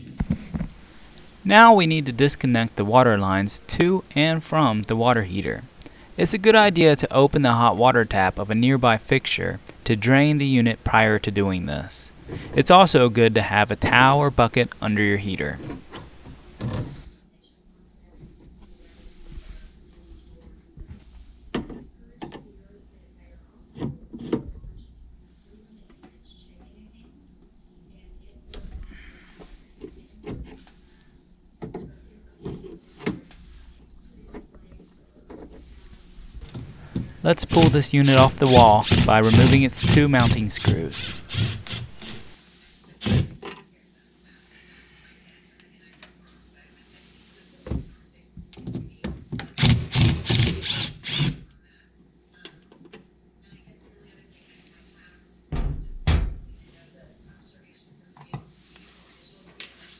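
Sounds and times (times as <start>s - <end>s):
cordless drill bursts: 37.0s - 42.3s, 49.6s - 51.4s.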